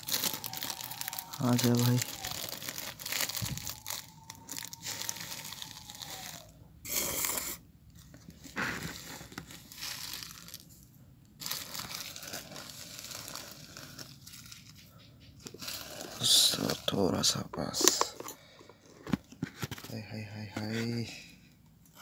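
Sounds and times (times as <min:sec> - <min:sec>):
plastic bag crinkling: 0:00.0 - 0:06.5, 0:08.0 - 0:10.8, 0:11.4 - 0:14.8, 0:15.5 - 0:18.6
spoon scooping sugar: 0:04.8 - 0:07.6.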